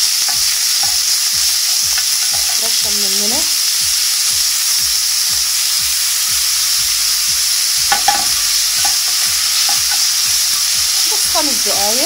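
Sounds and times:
onion sizzling in oil: 0:00.0 - 0:12.0
spoon scraping a pan: 0:00.2 - 0:02.9, 0:07.9 - 0:11.3.

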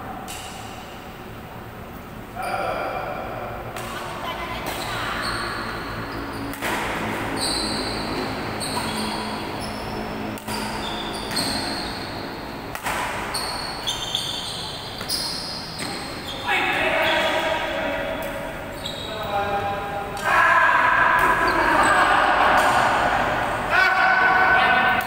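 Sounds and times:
sneakers squeaking on court: 0:04.4 - 0:17.6, 0:18.2 - 0:19.4
racket striking shuttlecock: 0:06.5 - 0:07.3, 0:10.3 - 0:12.0, 0:12.6 - 0:14.3, 0:22.3 - 0:23.3.

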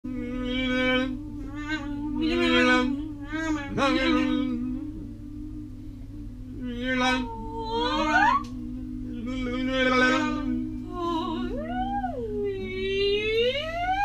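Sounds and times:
low held vocal tone: 0:00.0 - 0:14.0
short pitched vocal cries: 0:06.8 - 0:08.6.

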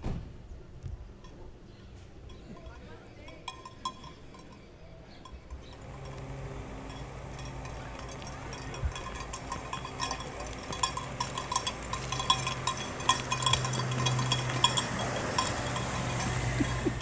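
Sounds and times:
light metallic clinking: 0:02.2 - 0:17.0
steady low hum: 0:05.3 - 0:17.0.

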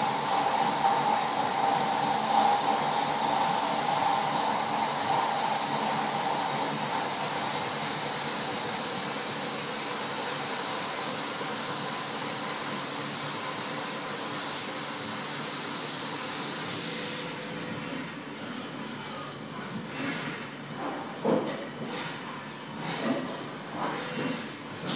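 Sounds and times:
coolant spray hiss: 0:00.0 - 0:16.9.

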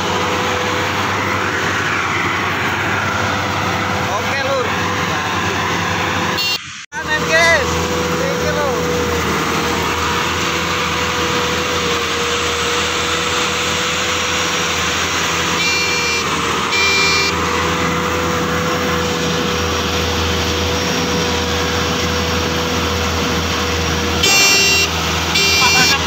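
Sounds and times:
combine harvester engine drone: 0:00.0 - 0:26.0
short beeps: 0:06.4 - 0:06.6, 0:15.6 - 0:17.3, 0:24.2 - 0:26.0.

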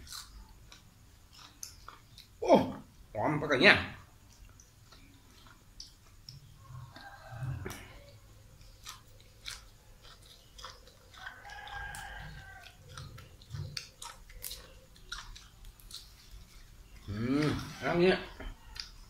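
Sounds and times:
person chewing and lip-smacking: 0:00.0 - 0:03.0, 0:04.2 - 0:17.8, 0:18.6 - 0:19.0.

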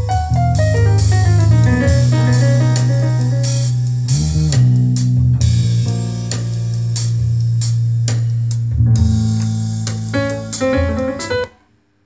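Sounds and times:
drum hits: 0:00.0 - 0:04.8
bass line: 0:00.0 - 0:11.5
music through speakers: 0:00.0 - 0:11.6.

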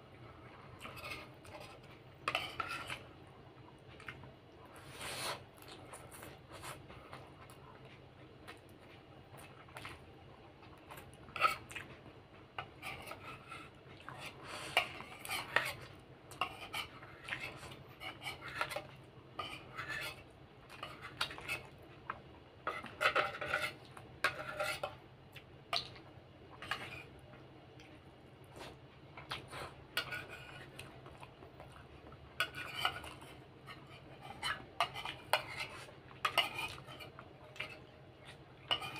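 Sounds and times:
metal spoon scraping a plate: 0:00.8 - 0:03.0, 0:12.8 - 0:20.2, 0:22.6 - 0:25.0, 0:30.0 - 0:30.7, 0:32.4 - 0:37.8, 0:38.6 - 0:38.9.

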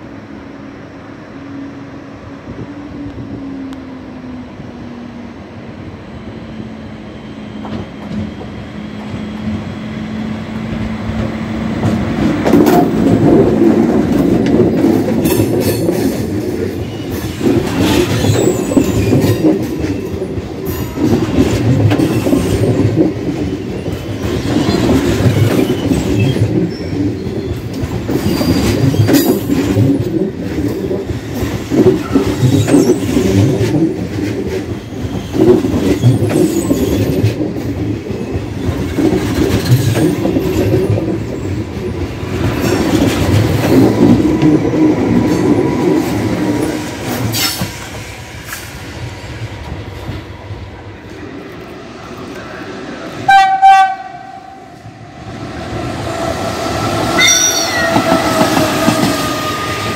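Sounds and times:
train rumbling past: 0:00.0 - 0:59.9
wheels clattering over rail joints: 0:10.6 - 0:48.6.

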